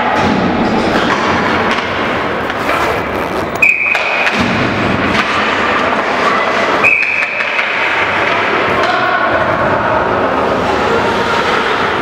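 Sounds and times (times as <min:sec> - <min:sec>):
steady rink noise: 0:00.0 - 0:12.0
skates on ice: 0:00.7 - 0:09.4
sticks and puck knocking: 0:00.9 - 0:06.1, 0:07.0 - 0:09.1
short high whistle blast: 0:03.6 - 0:04.0.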